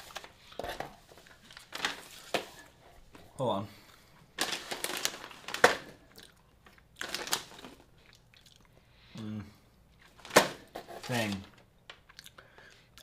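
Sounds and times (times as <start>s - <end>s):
packaging crinkling: 0.0s - 2.7s, 4.4s - 8.0s
snacks crunching: 4.8s - 8.8s, 11.9s - 13.0s.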